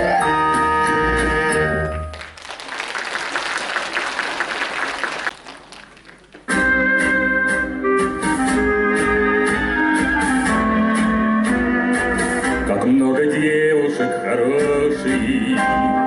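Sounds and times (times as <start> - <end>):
audience applauding: 2.0 - 6.5
music with a steady beat: 6.5 - 12.8.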